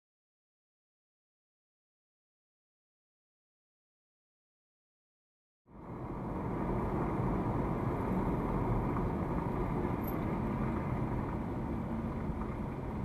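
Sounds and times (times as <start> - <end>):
car engine and road noise: 5.7 - 13.0.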